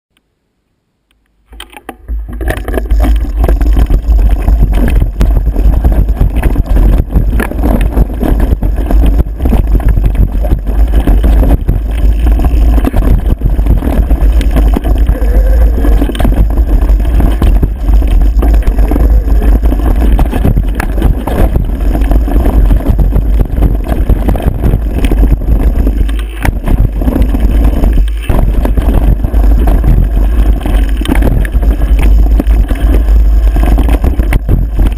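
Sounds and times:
bike rattling and knocking: 1.5 - 34.9
wind buffeting microphone: 2.4 - 34.9.

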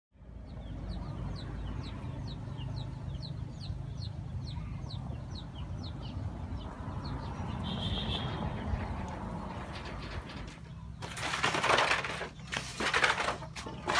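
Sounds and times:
small bird chirping: 0.2 - 9.2.

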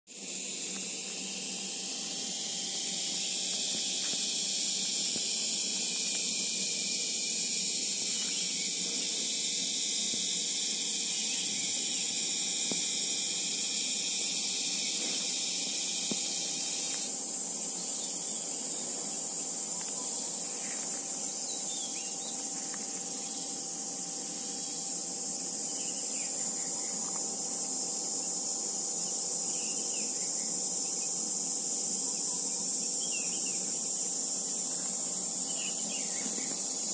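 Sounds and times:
high-pitched insect chorus: 0.1 - 36.9
faint chirps: 10.8 - 27.3.

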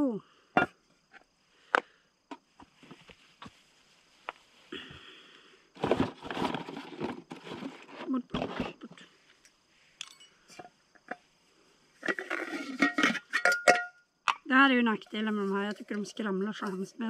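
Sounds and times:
rustling in cardboard box: 5.8 - 8.6
metal pot kit clicks and knocks: 12.0 - 14.4.

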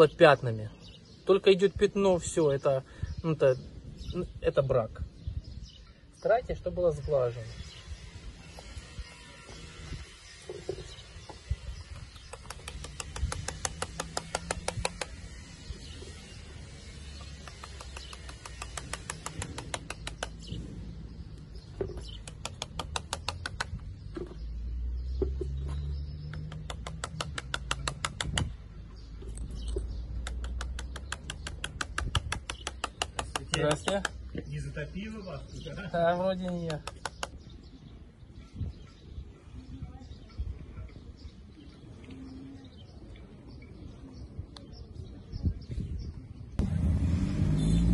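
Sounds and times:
wind rumble on microphone: 3.0 - 6.0, 7.4 - 17.6, 27.8 - 30.1, 31.7 - 32.5, 37.4 - 47.4.

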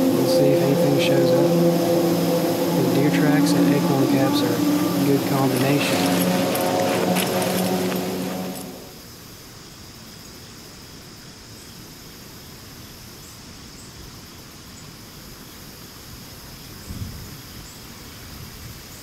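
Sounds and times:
crickets trilling: 0.0 - 8.9.

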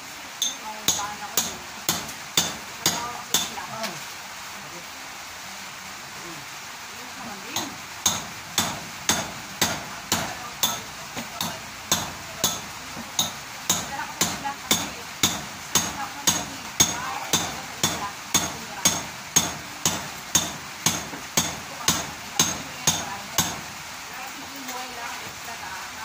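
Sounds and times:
hammer striking steel chisel: 0.4 - 3.6, 7.6 - 23.6.

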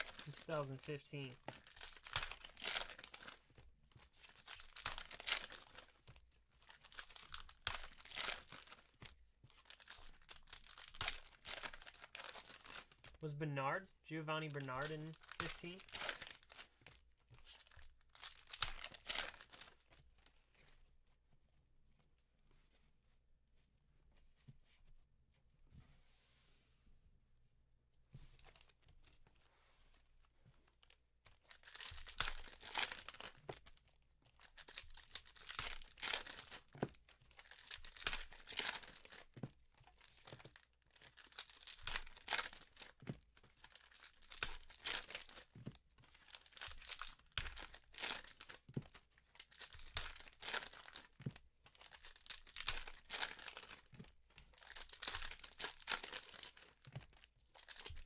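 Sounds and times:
foil wrappers tearing and crinkling: 0.0 - 6.0, 6.6 - 9.0, 9.6 - 13.2, 14.4 - 16.8, 17.4 - 20.3, 31.5 - 33.8, 34.4 - 58.0.

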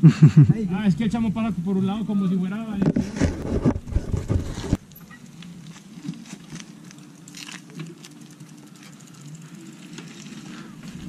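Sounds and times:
bike tyre hum on pavement: 0.6 - 11.0
bike clicks and rattles: 2.8 - 11.0.

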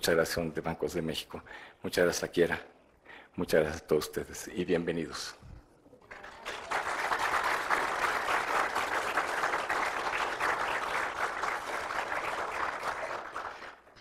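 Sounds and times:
audience applauding: 6.0 - 14.0.

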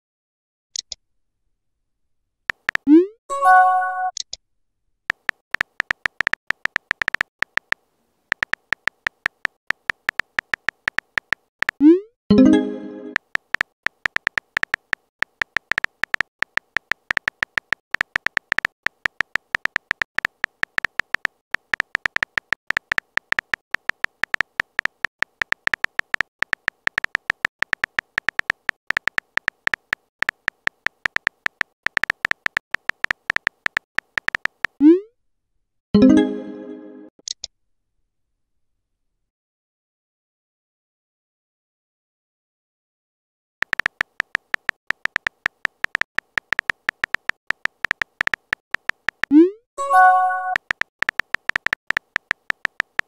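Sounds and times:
phone keyboard typing clicks: 2.5 - 3.0, 5.1 - 11.9, 12.5 - 34.8, 43.6 - 53.0.

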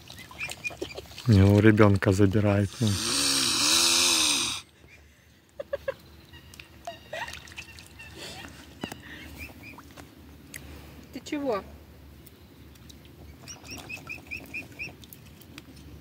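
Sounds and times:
faint water splashes: 0.0 - 4.6, 6.4 - 11.6, 12.7 - 16.0
swan hissing: 2.6 - 4.7.

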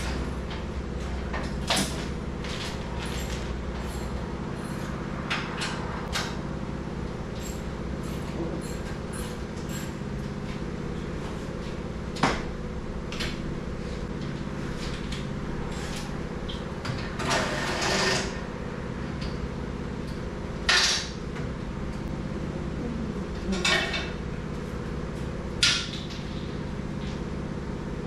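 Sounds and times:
tools and metal parts clanking: 0.0 - 6.3, 7.3 - 10.6, 23.5 - 24.2
steady low hum: 0.0 - 28.0.

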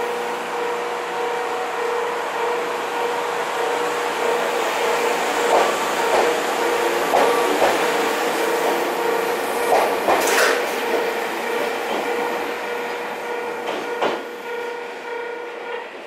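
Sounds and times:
train hum: 0.0 - 16.0
train wheels knocking on rail joints: 4.4 - 14.8.

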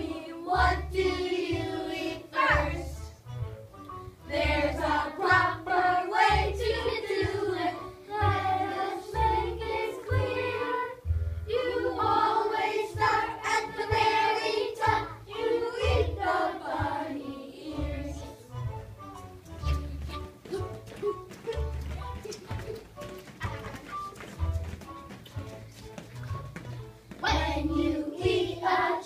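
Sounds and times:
children singing together: 4.3 - 18.4, 27.2 - 29.0.

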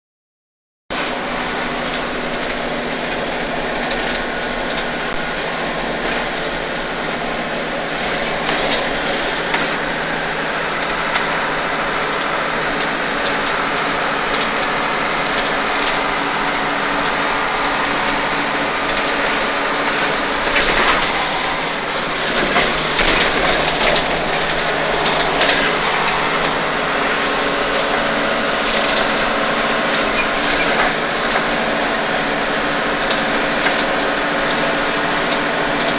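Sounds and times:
vehicle engine and road noise: 0.9 - 35.9
sharp rattles and knocks: 12.0 - 31.7.

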